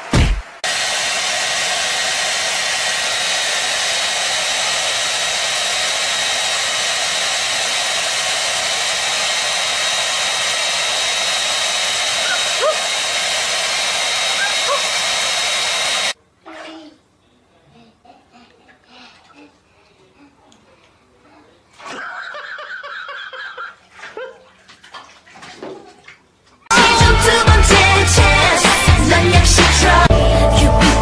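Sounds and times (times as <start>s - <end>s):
hair dryer running: 0.6s - 16.2s, 26.7s - 30.3s.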